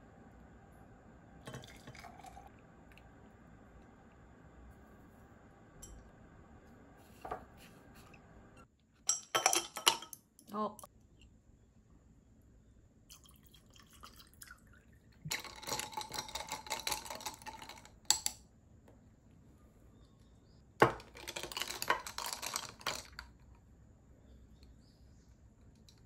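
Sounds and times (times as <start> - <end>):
glass and ice clinking: 1.4 - 2.5, 5.8 - 6.0, 9.1 - 10.2, 13.1 - 18.3, 20.8 - 23.2
water pouring over ice: 13.1 - 17.8.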